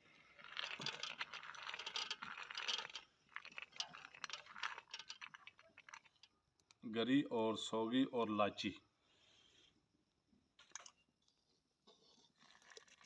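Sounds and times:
nuts scraping across a plate: 0:00.4 - 0:06.3
nuts clicking: 0:00.4 - 0:06.8.

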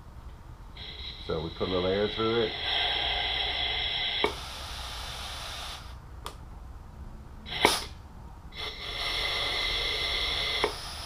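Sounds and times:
compressed air hissing through valve: 0:00.7 - 0:06.0, 0:07.5 - 0:11.0.

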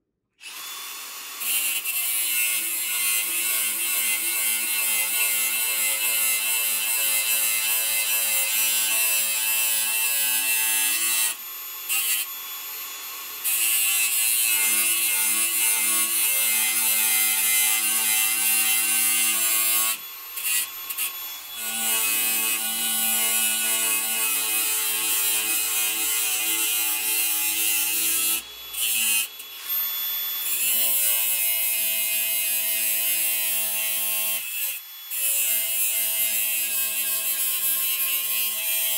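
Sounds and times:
angle grinder cutting steel: 0:00.4 - 0:38.9
grinder motor whine: 0:10.8 - 0:32.2.

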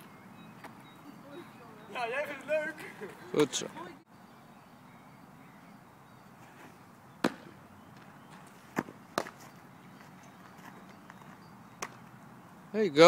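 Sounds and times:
faint outdoor background: 0:00.0 - 0:13.0
baseball popping into glove: 0:08.7 - 0:09.4.

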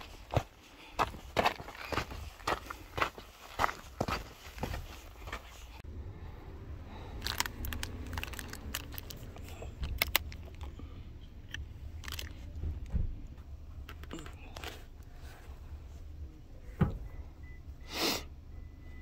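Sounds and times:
low steady rumble: 0:05.7 - 0:17.8
plastic bottle cap crackling: 0:07.2 - 0:10.7.

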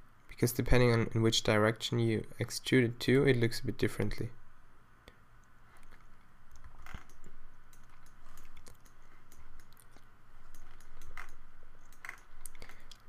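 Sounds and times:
faint steady hum: 0:00.0 - 0:13.0
computer keyboard and mouse clicks: 0:05.8 - 0:13.0.

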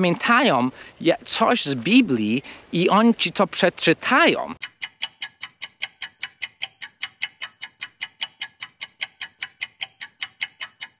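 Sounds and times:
sharp ticks: 0:04.6 - 0:11.0.

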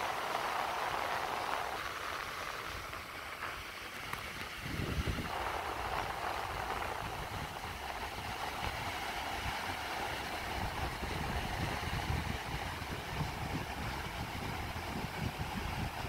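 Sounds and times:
ocean surf breaking: 0:00.0 - 0:16.0
wind rumble on microphone: 0:00.0 - 0:16.0.

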